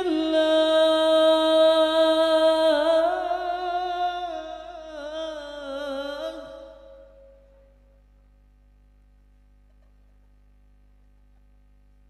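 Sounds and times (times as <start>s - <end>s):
man singing into a microphone: 0.0s - 7.2s.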